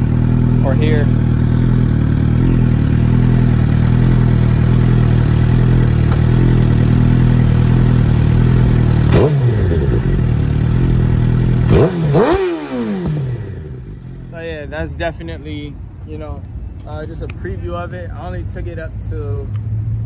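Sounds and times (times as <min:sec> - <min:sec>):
motorcycle engine running: 0:00.0 - 0:14.3.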